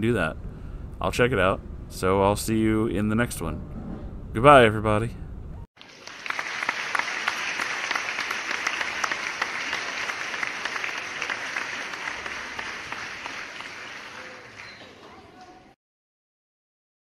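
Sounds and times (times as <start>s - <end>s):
crowd applauding: 5.8s - 15.8s.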